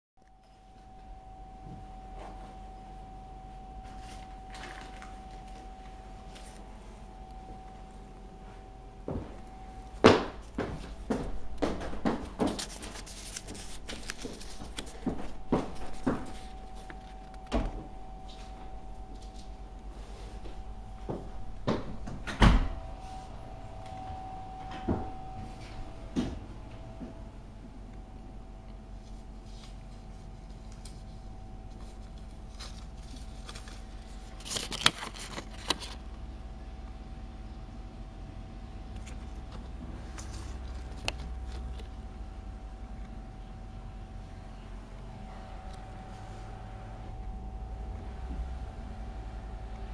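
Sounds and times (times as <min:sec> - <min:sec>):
faint steady hum: 0:00.2 - 0:49.9
knocks of things being handled: 0:09.1 - 0:18.7
paper rustling: 0:12.1 - 0:17.5, 0:29.0 - 0:36.0, 0:39.0 - 0:41.9.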